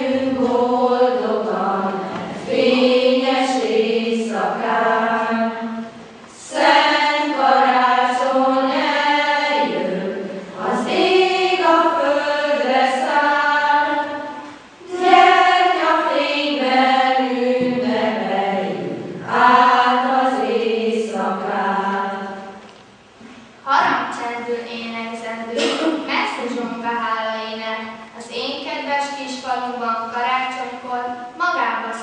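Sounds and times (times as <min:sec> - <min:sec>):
female choir singing: 0:00.0 - 0:22.6.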